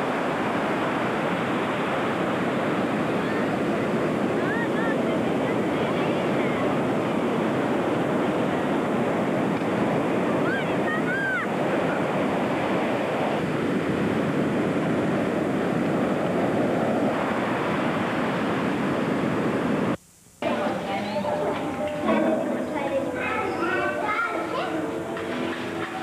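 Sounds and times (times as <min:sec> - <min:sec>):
wind on microphone: 0:00.0 - 0:20.0
surf breaking on beach: 0:00.0 - 0:20.8.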